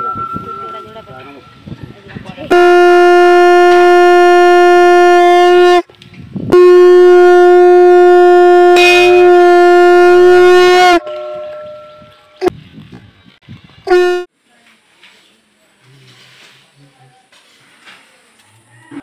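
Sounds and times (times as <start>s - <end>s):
conch shell blasts: 2.5s - 5.8s, 6.5s - 12.0s, 13.9s - 14.3s.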